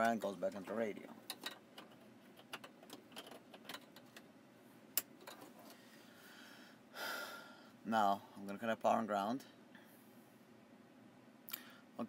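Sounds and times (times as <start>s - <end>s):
plastic connectors clicking and rattling: 1.2s - 4.3s.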